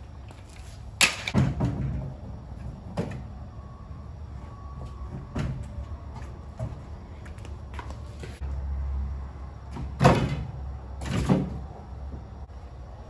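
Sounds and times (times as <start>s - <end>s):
tire being unloaded: 0.0s - 8.6s.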